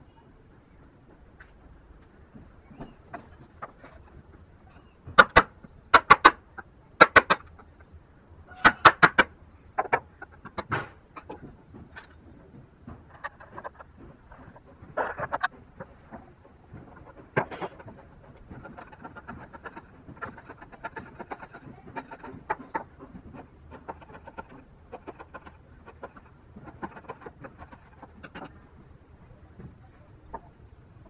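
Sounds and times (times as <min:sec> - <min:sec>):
wood chisel scraping wood: 0:16.8 - 0:28.6.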